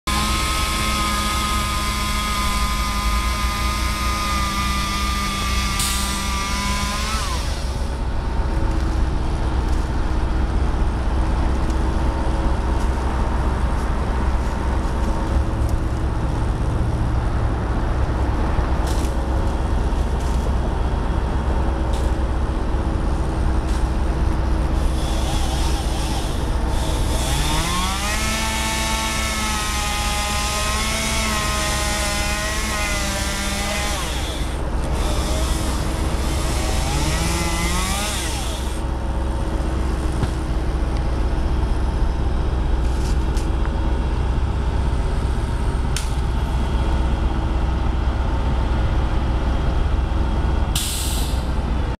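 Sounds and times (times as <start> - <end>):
motor revving: 0.1 - 7.9, 24.8 - 38.9
truck engine rumbling: 0.1 - 52.0.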